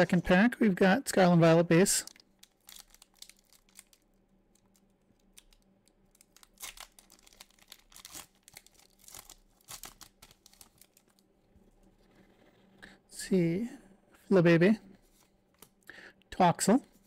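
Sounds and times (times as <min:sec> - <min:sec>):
foil wrapper crinkling: 0:02.0 - 0:11.3.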